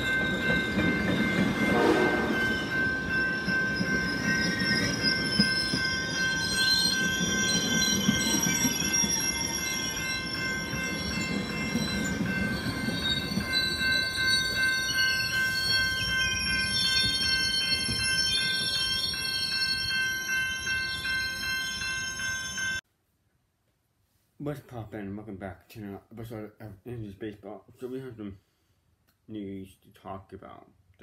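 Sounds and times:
train wheels rumbling on rail: 0.0s - 22.6s.

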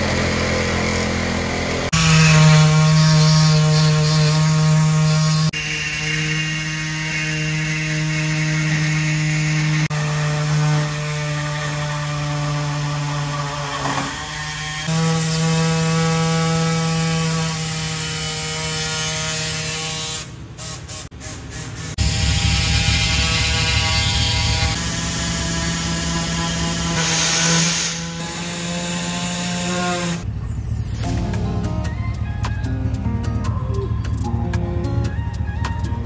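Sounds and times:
compressed air hissing into tyre: 27.0s - 28.0s.

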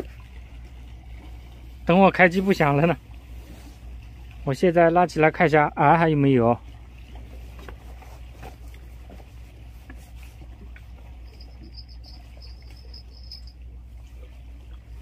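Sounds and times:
low steady rumble: 0.0s - 15.0s
thin high tone: 11.1s - 13.8s.

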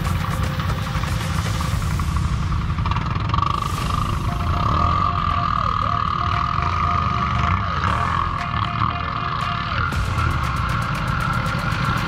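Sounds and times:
ground noise rumble: 0.0s - 6.5s
atv engine running with whine: 0.0s - 12.0s
faint repeating tone: 3.9s - 10.3s.

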